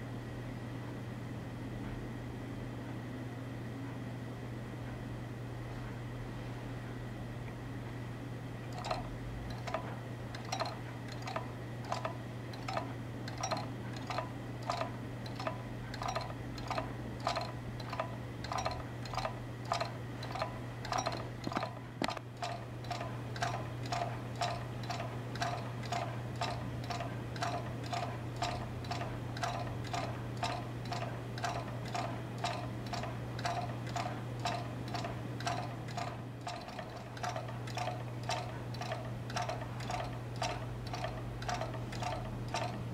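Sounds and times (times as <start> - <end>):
steady low hum: 0.0 - 42.9
magnet wheel ticking: 8.8 - 42.8.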